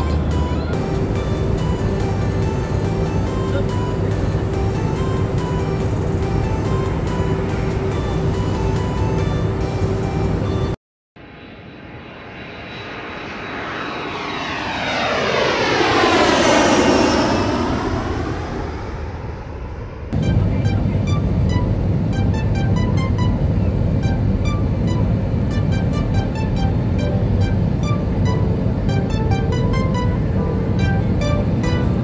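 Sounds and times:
airplane passing overhead: 0.0 - 32.0
music with steady beat: 20.2 - 32.0.

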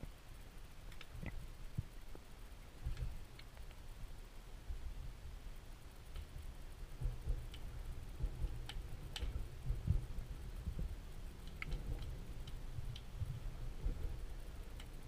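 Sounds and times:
faint clicks: 0.9 - 3.8, 6.0 - 15.0
underwater low rumble: 4.6 - 15.0.

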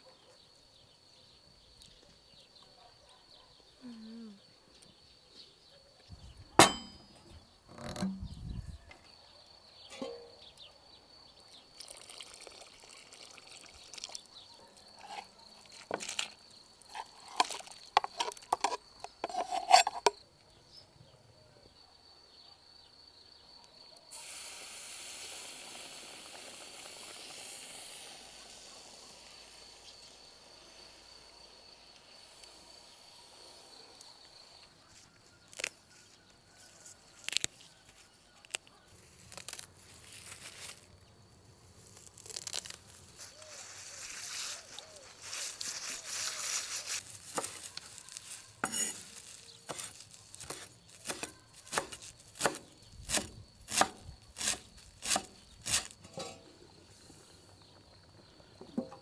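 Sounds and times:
metal utensils clinking on pan: 6.6 - 7.2, 9.9 - 10.3, 48.6 - 49.1
sharp knock: 6.6 - 7.2
hot wood hissing in broth: 11.8 - 18.5, 24.1 - 34.6, 42.4 - 57.8.

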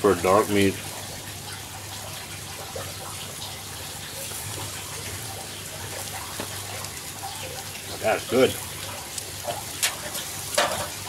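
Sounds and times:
meat sizzling on a grill: 0.0 - 11.0
faint crackles: 4.0 - 11.0.

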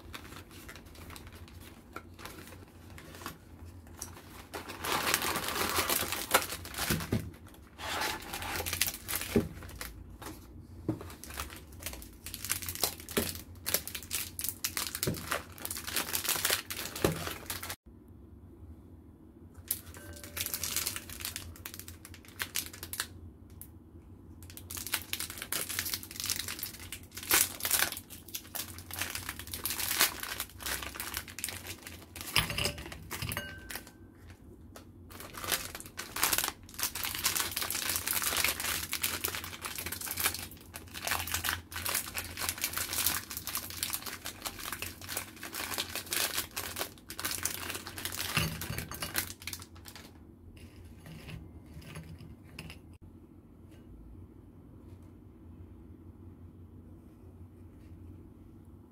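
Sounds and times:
plastic wrappers crinkling: 0.0 - 17.8, 19.7 - 23.1, 24.4 - 34.4, 35.1 - 50.2.

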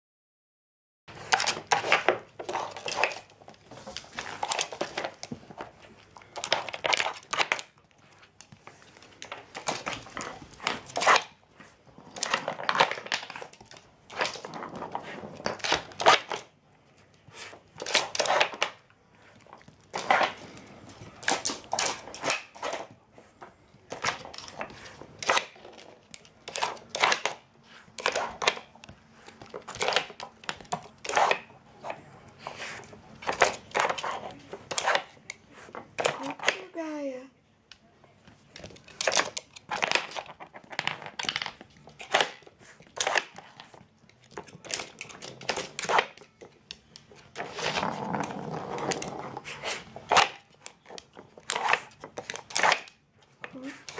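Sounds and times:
wooden puzzle pieces clattering: 38.6 - 42.4.

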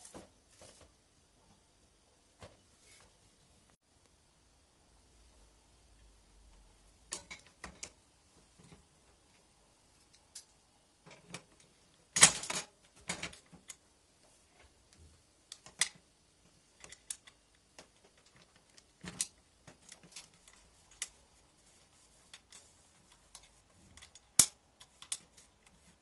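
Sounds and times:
metal parts clicking and knocking: 16.8 - 21.2.

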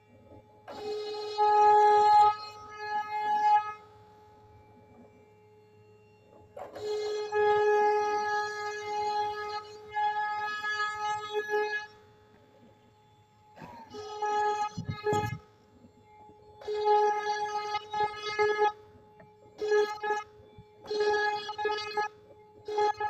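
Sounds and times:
router spindle whining: 0.0 - 23.0
router bit cutting wood: 13.5 - 15.4, 16.2 - 18.7.

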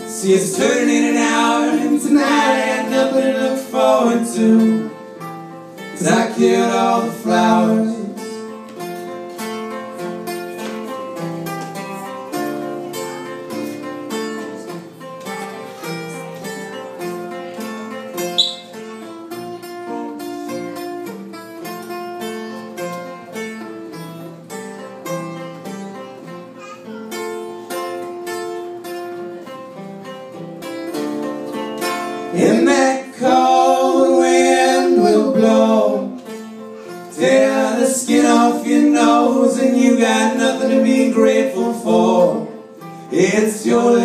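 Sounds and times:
acoustic guitar playing: 0.0 - 44.0
brief high-pitched sound: 18.3 - 18.9.

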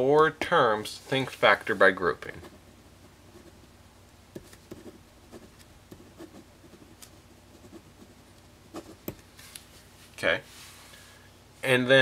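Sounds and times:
pen scratching on paper: 4.4 - 9.1.

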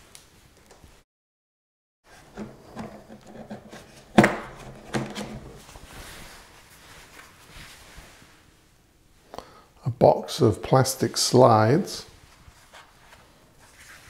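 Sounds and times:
plastic box rubbing and clattering: 2.1 - 5.7.

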